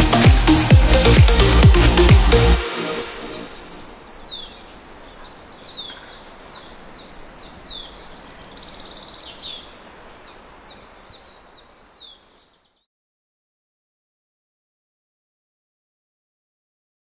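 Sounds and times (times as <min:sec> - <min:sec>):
faint outdoor hiss: 0:00.5 - 0:12.9
bird whistling song: 0:03.1 - 0:09.7.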